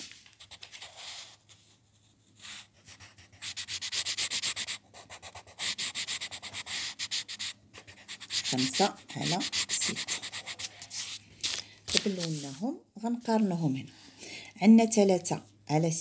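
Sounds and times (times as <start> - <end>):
pencil scribbling on paper: 0.4 - 11.2.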